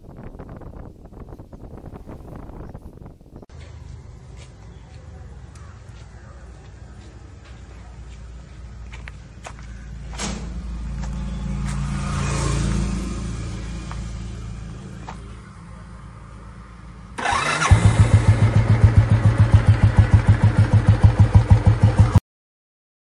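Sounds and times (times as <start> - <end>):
engine idling thump: 10.1 - 11.1
motorcycle engine starting: 17.2 - 22.2.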